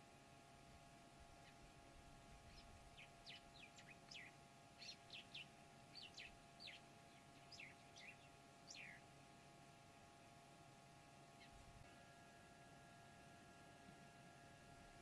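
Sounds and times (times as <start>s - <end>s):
faint high bird chirps: 2.3s - 9.1s, 11.3s - 11.7s.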